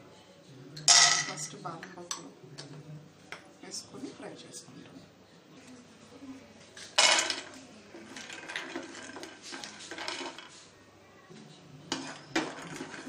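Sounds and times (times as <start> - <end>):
nuts rattling in a frying pan: 7.0 - 10.6, 11.9 - 13.0.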